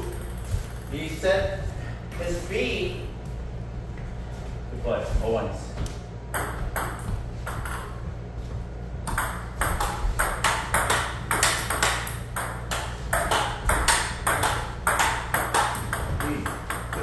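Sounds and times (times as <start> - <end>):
ping pong ball hitting paddles and table: 0.0 - 0.9, 6.3 - 8.2, 9.0 - 17.0.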